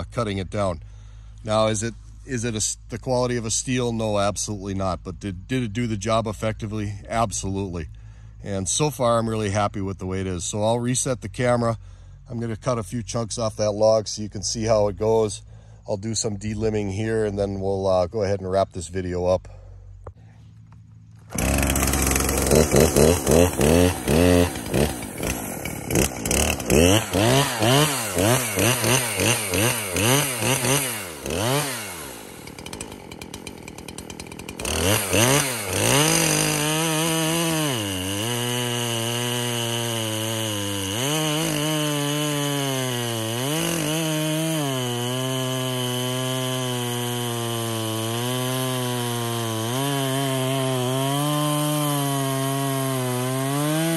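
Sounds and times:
chainsaw cutting log: 19.6 - 53.9
chainsaw revving: 21.1 - 53.9.

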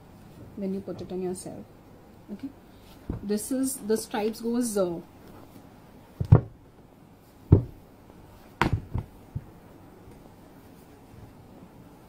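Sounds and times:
fabric bolt thumps: 6.2 - 6.6, 7.5 - 7.8, 8.6 - 9.6
small knocks: 6.2 - 6.6, 7.5 - 7.8, 8.6 - 9.6.

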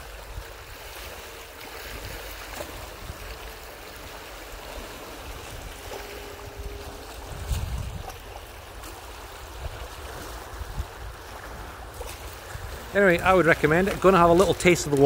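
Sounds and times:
small waves lapping on rocks: 0.0 - 15.0
low rumble: 2.0 - 10.0.

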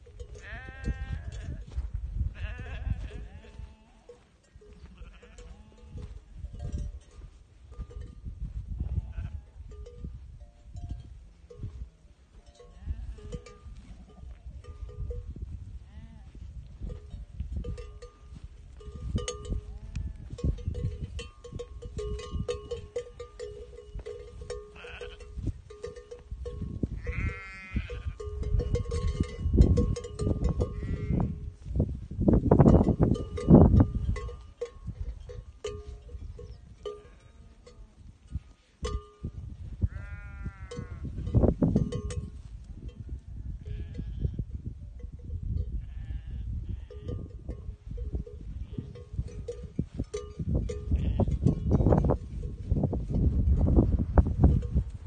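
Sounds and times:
sheep bells clanking: 0.0 - 15.5, 16.8 - 31.7, 32.3 - 55.0
wind rumble on microphone: 0.0 - 55.0
sheep bleating: 0.4 - 1.6, 2.4 - 4.2, 4.8 - 6.1, 8.9 - 9.5, 24.7 - 25.3, 27.0 - 28.2, 30.7 - 31.3, 39.9 - 41.0.

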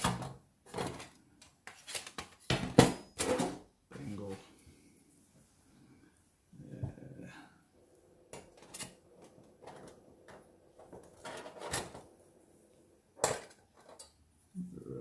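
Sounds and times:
metal plates clinking and scraping: 8.4 - 12.0.

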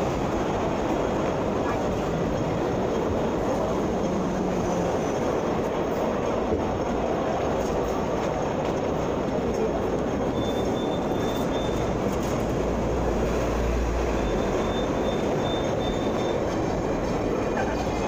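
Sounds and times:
vehicle interior running noise: 9.5 - 18.0.

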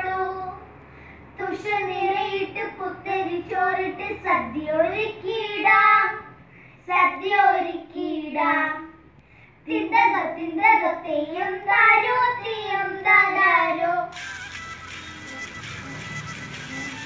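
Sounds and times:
girls singing: 0.0 - 0.7, 1.4 - 9.0, 9.7 - 14.1.

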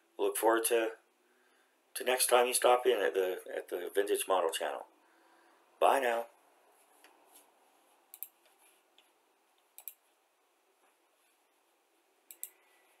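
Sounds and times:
short clicks: 9.8 - 10.0, 12.3 - 12.6.

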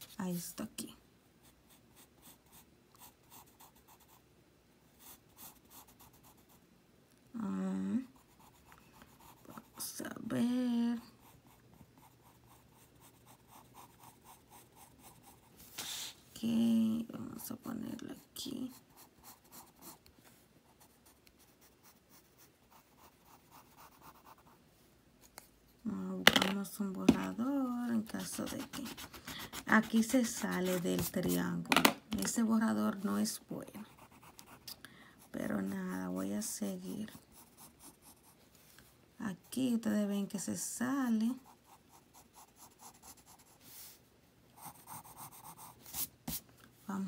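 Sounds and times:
pencil scratching on paper: 1.4 - 4.2, 5.0 - 6.6, 8.0 - 10.2, 11.0 - 16.1, 17.5 - 20.1, 20.7 - 24.6, 27.9 - 31.6, 33.7 - 38.4, 41.3 - 43.9, 44.6 - 46.4.

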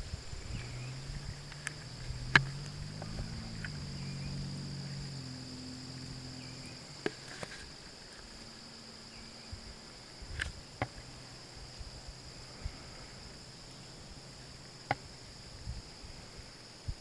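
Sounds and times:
insect chorus trilling: 0.0 - 17.0
low bumps: 0.0 - 17.0.

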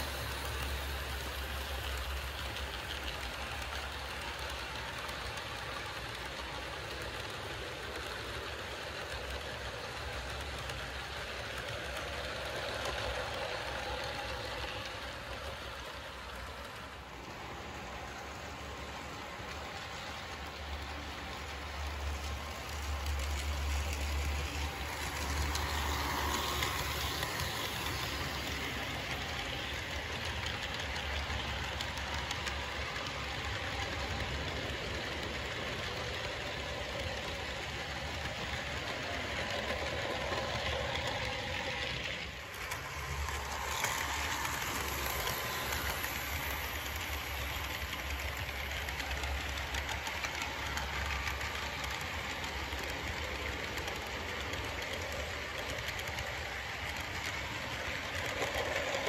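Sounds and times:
model locomotive motors running: 0.0 - 59.0
model train wheels on rails: 0.0 - 59.0.

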